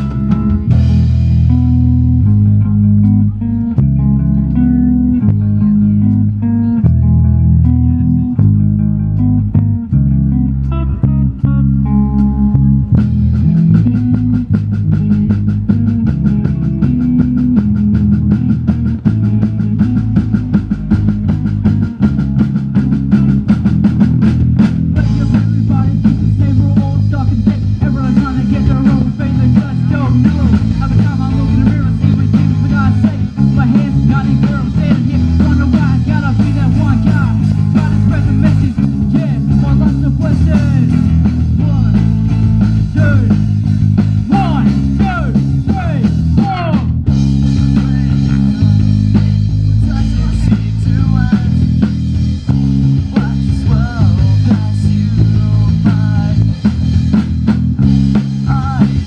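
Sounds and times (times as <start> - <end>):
live rock band playing: 0.0 - 59.0
person rapping: 24.9 - 42.1, 42.9 - 43.4, 44.3 - 47.0, 47.6 - 51.7, 53.0 - 56.5, 58.4 - 59.0.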